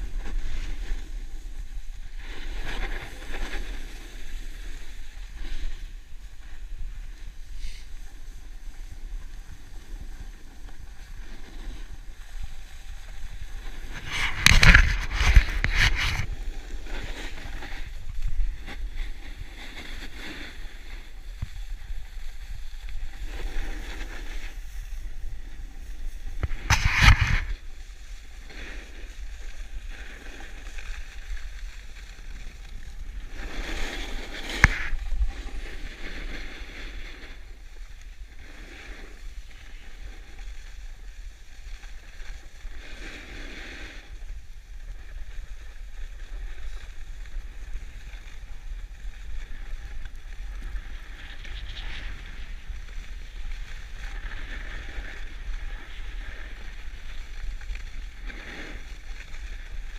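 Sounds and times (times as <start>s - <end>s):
loud scraping rushes on snow: 0.0s - 59.9s
snow rushing under skis: 0.0s - 59.9s
wind buffeting microphone: 5.0s - 28.2s.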